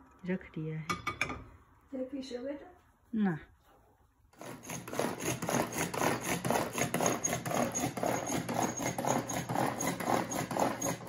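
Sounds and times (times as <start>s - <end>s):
pull-cord food chopper whirring: 4.4s - 11.0s.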